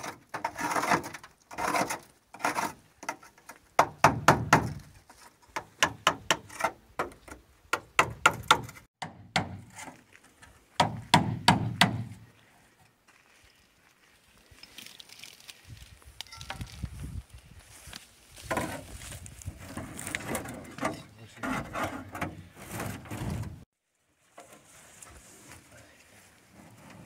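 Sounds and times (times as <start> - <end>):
sharp hammer-like knocks: 10.8 - 12.1.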